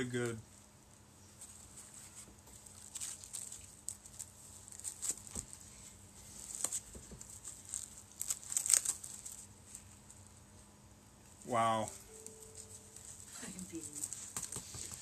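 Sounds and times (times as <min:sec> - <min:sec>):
packaging crinkling and rustling: 0:01.4 - 0:10.3, 0:12.2 - 0:15.0.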